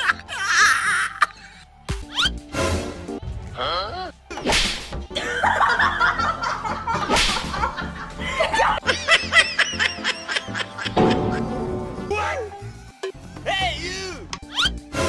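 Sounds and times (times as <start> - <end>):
background music: 0.0 - 15.0
snickering laughter: 5.2 - 11.0.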